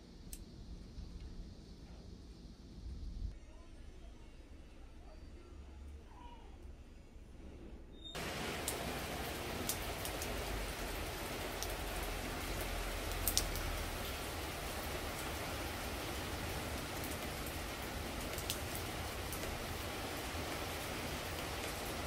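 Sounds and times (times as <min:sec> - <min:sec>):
rain falling on pavement: 0:08.2 - 0:22.0.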